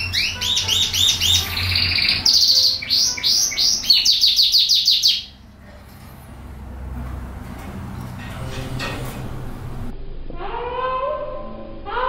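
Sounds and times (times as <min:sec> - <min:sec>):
canary singing: 0:00.0 - 0:05.6.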